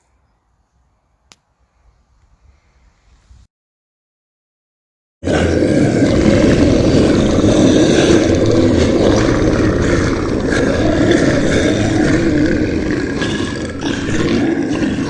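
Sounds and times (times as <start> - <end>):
animatronic dinosaur roar: 5.2 - 15.0.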